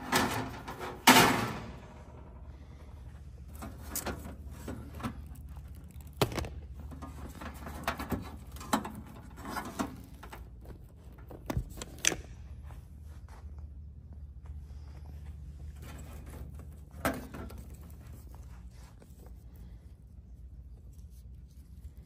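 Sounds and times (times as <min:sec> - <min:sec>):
steady low hum: 0:00.0 - 0:22.0
cable connectors clicking and rustling: 0:03.4 - 0:12.6.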